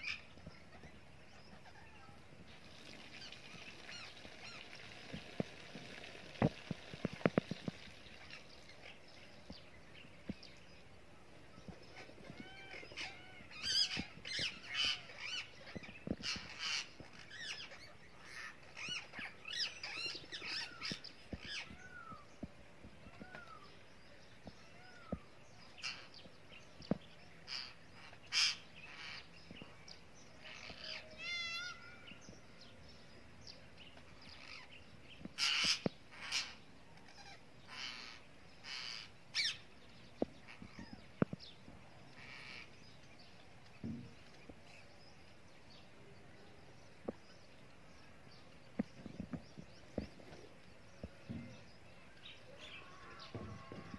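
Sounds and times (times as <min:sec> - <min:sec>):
parakeets squawking and chirping: 0:00.0 - 0:02.3, 0:11.8 - 0:22.1, 0:25.8 - 0:26.2, 0:27.4 - 0:29.8, 0:30.4 - 0:32.0, 0:34.4 - 0:39.7, 0:42.1 - 0:43.0.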